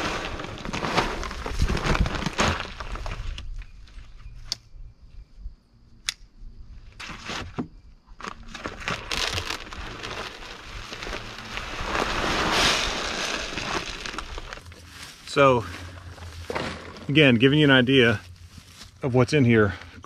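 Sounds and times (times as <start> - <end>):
grain pouring hiss: 0.0 - 2.3, 9.0 - 15.6
bag crinkling: 0.0 - 3.5, 8.2 - 17.2
sharp clicks: 6.0 - 6.3.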